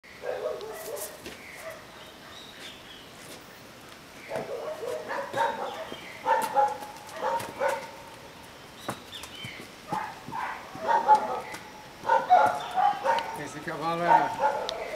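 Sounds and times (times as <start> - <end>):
dogs barking: 0.2 - 1.9, 4.3 - 8.2, 9.9 - 14.9.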